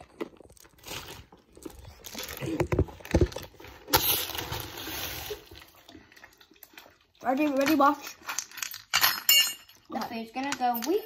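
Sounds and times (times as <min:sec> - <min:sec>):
plastic bag rustling: 0:00.0 - 0:05.9.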